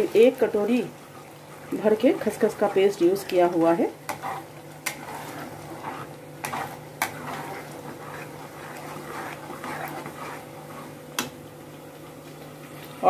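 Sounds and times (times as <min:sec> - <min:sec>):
metal spatula scraping a pan: 0:03.5 - 0:11.0.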